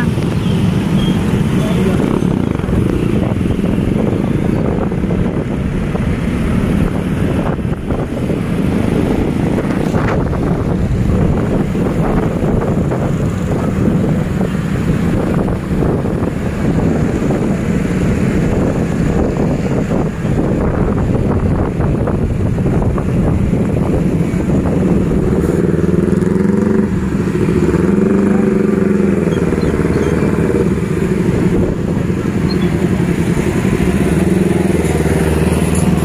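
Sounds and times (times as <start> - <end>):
motor scooter engines running: 0.0 - 36.0
wind noise on microphone: 0.0 - 36.0.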